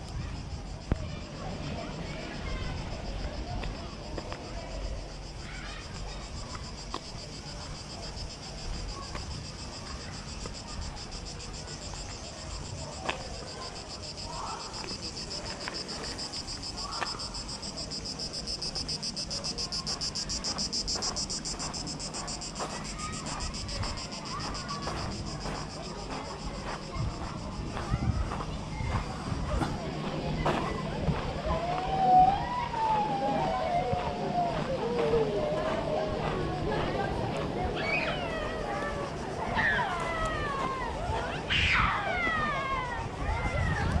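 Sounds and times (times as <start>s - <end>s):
cicadas buzzing: 0.0s - 44.0s
wind rumble on microphone: 26.4s - 37.8s, 38.6s - 44.0s.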